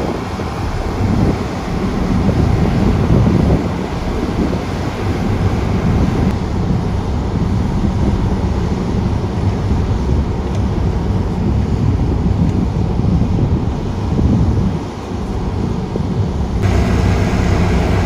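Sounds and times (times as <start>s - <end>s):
wind buffeting microphone: 0.0s - 18.0s
road roller diesel engines droning: 16.6s - 18.0s.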